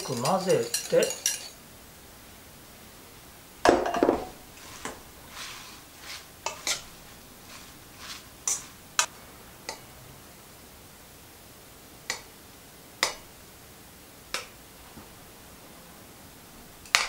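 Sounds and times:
bowl clatter: 0:00.0 - 0:01.6, 0:03.7 - 0:05.0
salad leaves rustling in metal bowl: 0:00.0 - 0:01.6, 0:03.9 - 0:09.1.

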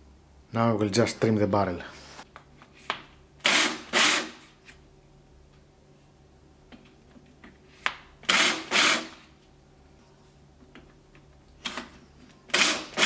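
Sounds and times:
cordless drill spinning: 0:03.4 - 0:04.3, 0:08.3 - 0:09.2, 0:12.5 - 0:13.0.

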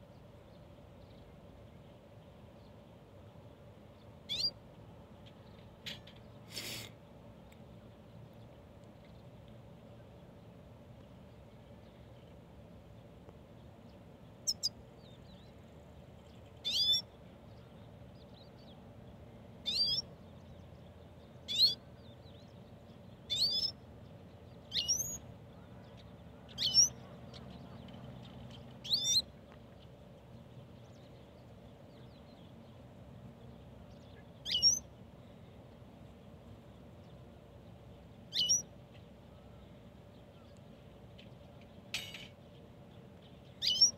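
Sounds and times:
bird chirping calls: 0:04.3 - 0:04.6, 0:14.4 - 0:15.5, 0:16.3 - 0:17.9, 0:19.6 - 0:20.7, 0:21.4 - 0:23.8, 0:24.5 - 0:30.0, 0:33.9 - 0:34.9, 0:38.2 - 0:38.7, 0:43.2 - 0:43.9.

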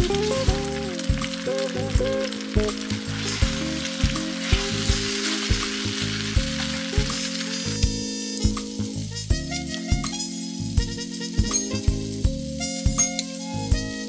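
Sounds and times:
background music with beat: 0:00.0 - 0:14.0
sauce sizzling in frying pan: 0:00.0 - 0:14.0.

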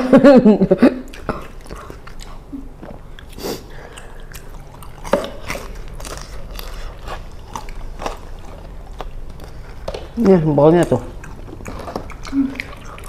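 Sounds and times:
people chewing crunchy snacks: 0:01.0 - 0:13.0.

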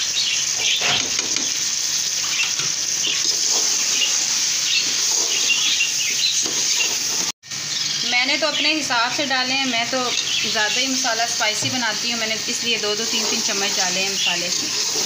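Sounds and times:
food sizzling in a pot: 0:00.0 - 0:15.0.

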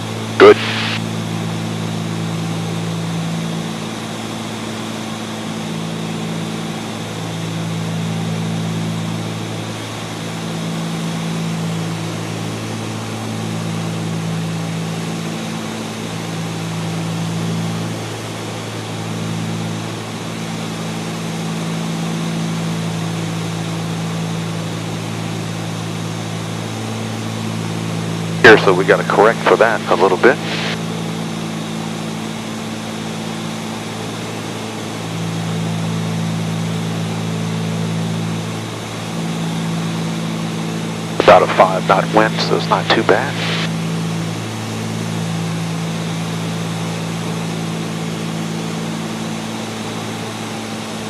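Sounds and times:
propeller engines droning: 0:00.0 - 0:51.0.

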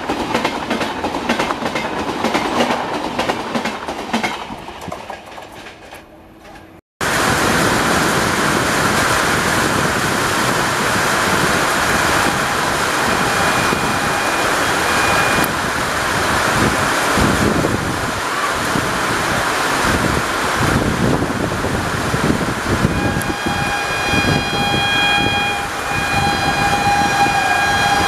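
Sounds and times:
wind rushing over microphone: 0:07.0 - 0:28.0.

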